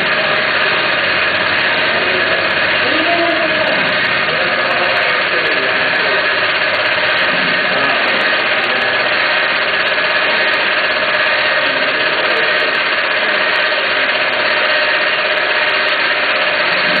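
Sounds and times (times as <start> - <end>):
machine drive humming: 0.0 - 17.0.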